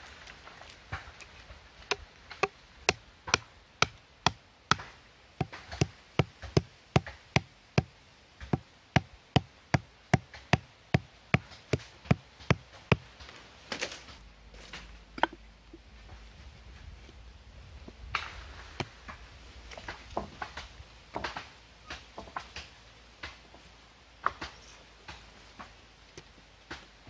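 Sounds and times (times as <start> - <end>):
knife striking bamboo stake: 1.0 - 14.0, 14.6 - 15.4.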